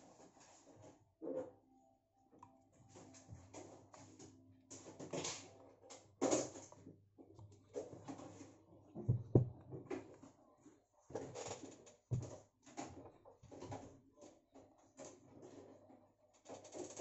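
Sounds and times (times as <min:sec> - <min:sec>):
knocks on plastic stand: 0:09.1 - 0:09.8.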